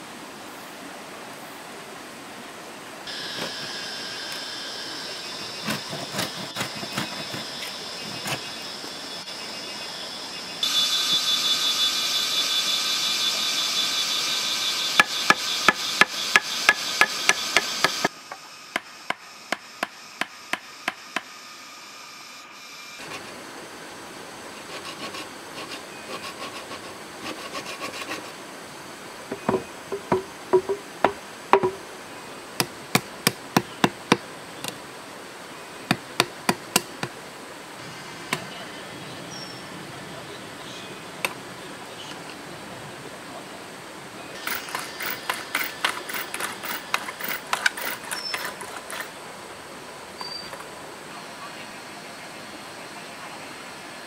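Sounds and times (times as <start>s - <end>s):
high-pitched buzz: 3.1s - 23.4s
hammer striking chisel: 15.0s - 18.1s, 29.5s - 31.8s.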